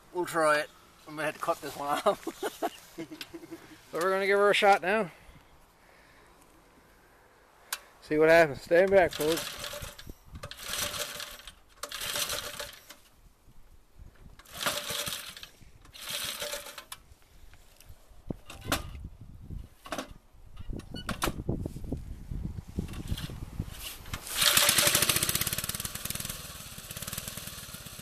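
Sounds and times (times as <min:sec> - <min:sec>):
recoil starter pulls: 0:08.7 - 0:13.1, 0:14.4 - 0:17.0, 0:22.9 - 0:28.0
small engine sputtering: 0:09.0 - 0:13.0, 0:14.4 - 0:17.0, 0:24.1 - 0:28.0.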